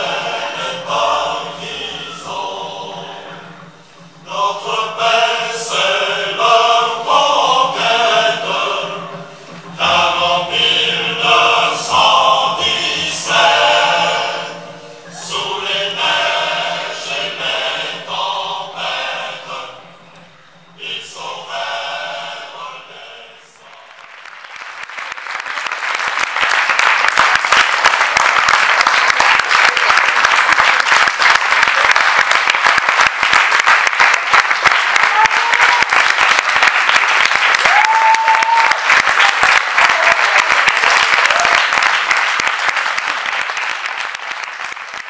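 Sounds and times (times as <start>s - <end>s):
voices singing together: 0.0s - 24.4s
audience applauding: 23.6s - 45.0s
calls from crowd: 23.6s - 45.0s.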